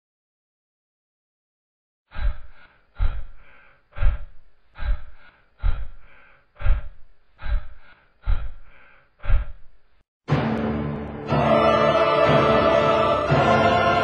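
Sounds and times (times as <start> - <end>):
breathy gasp-like hiss: 2.1 - 9.6.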